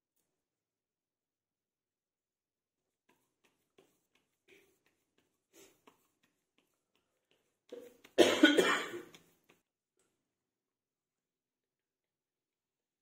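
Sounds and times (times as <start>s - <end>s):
person coughing: 7.7s - 9.2s.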